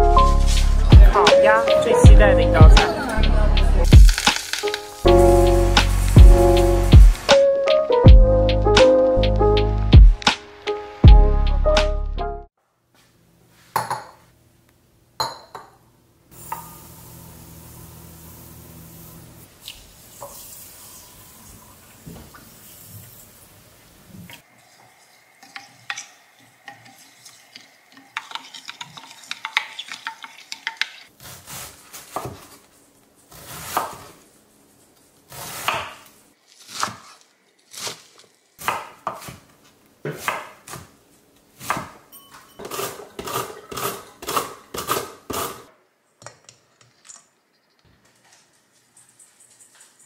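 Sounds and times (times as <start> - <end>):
utensils knocking and scraping bowls: 24.8 - 31.1, 42.3 - 45.7.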